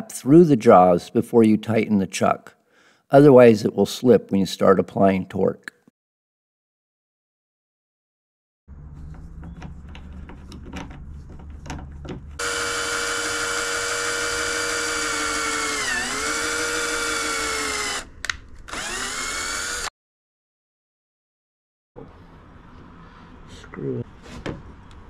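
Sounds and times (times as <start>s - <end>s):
cordless drill whining: 12.4s - 19.9s.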